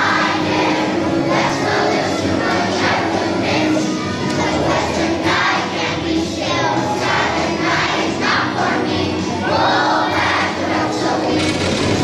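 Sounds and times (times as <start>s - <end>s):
children's choir singing: 0.0s - 12.0s.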